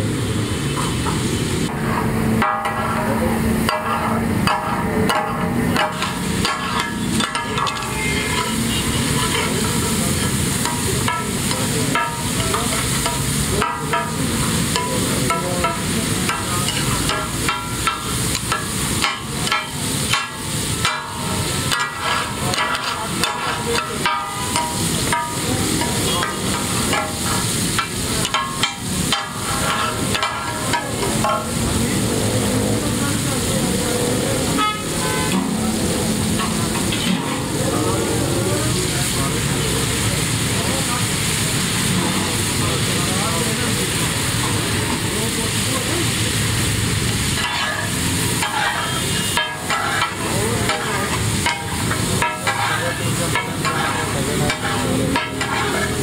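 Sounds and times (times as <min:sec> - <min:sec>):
meat sizzling on a griddle: 0:00.0 - 0:56.0.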